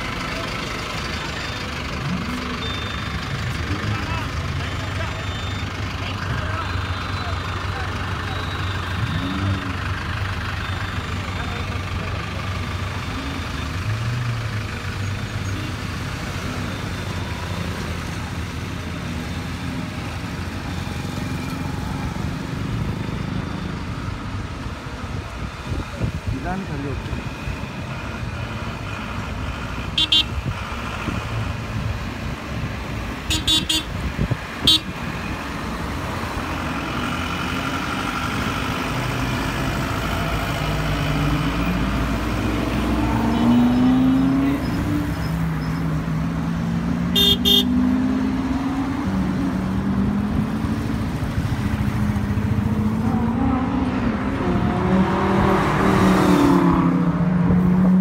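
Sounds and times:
car engines revving: 0.0 - 58.0
car horn toots: 30.0 - 30.4, 33.3 - 34.0, 34.6 - 34.9, 47.1 - 47.8.

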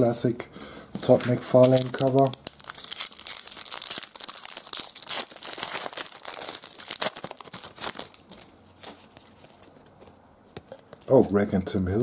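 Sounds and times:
foil wrapper tearing and crinkling: 1.1 - 9.6.

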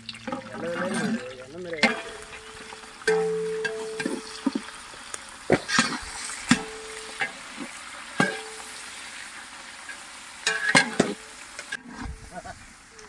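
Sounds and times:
pot ringing: 0.0 - 4.8, 5.7 - 9.0, 10.4 - 11.4
onions sizzling in hot oil: 1.2 - 13.0
metal ladle knocking on pot: 1.8 - 4.6, 6.5 - 7.4, 8.2 - 8.7.

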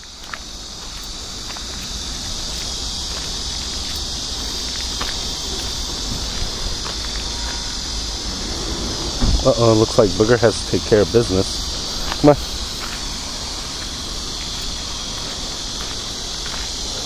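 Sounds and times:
chorus of insects: 0.0 - 17.0
low rumble: 5.9 - 10.9.

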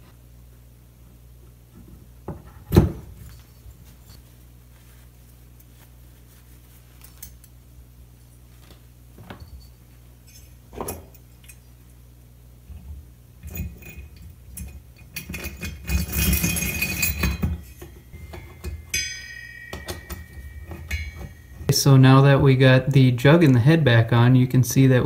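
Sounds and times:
faint low hum: 0.0 - 25.0
metal parts clinking and rattling: 9.3 - 11.9, 13.4 - 21.7.

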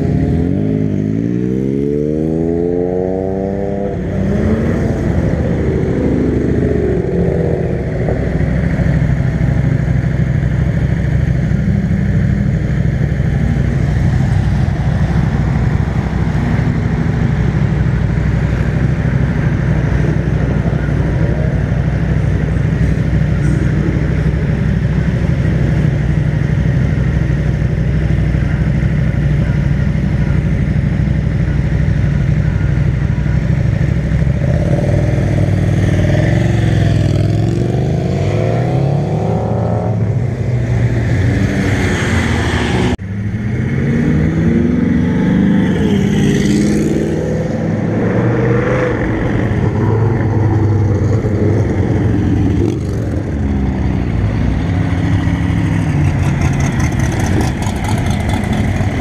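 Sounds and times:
motorcycles idling: 4.0 - 37.6, 49.1 - 59.0.

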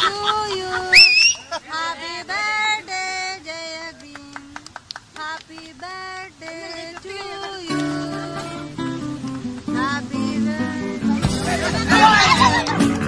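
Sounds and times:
high voice singing slow tune: 5.2 - 12.4.

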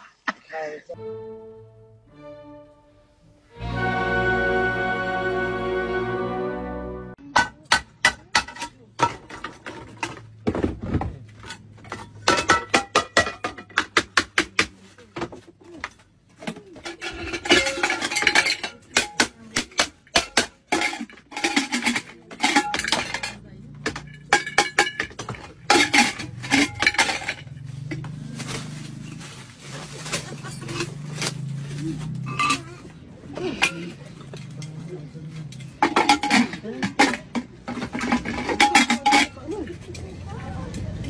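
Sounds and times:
metal pots clanking together: 7.3 - 10.7, 11.4 - 14.7, 15.9 - 29.0, 30.0 - 31.4, 32.2 - 34.7, 35.5 - 39.5.

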